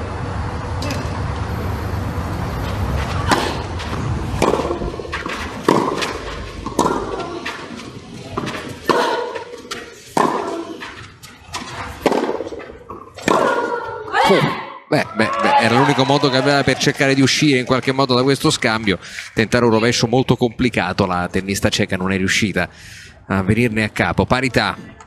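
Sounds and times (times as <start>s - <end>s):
tennis balls struck by rackets: 3.1s - 14.2s.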